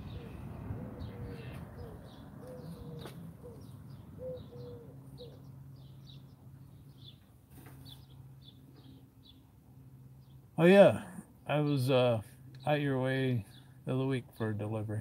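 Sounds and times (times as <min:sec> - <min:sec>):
dove cooing: 0:00.0 - 0:05.5
small bird chirping: 0:01.0 - 0:10.5.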